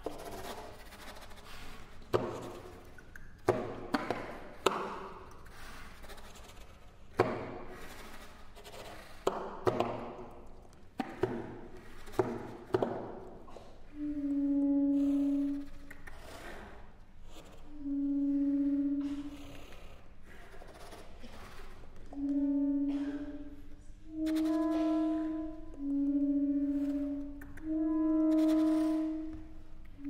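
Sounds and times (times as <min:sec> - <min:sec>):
held low saxophone note: 0:13.9 - 0:15.8, 0:17.7 - 0:19.8, 0:22.1 - 0:30.0
saxophone quartet percussive attacks: 0:22.1 - 0:29.5.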